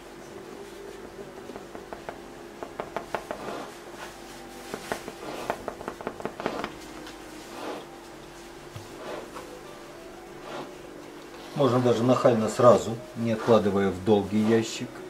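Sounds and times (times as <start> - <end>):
low room hum: 0.0 - 15.0
paintbrush tapping and scratching canvas: 1.4 - 7.9.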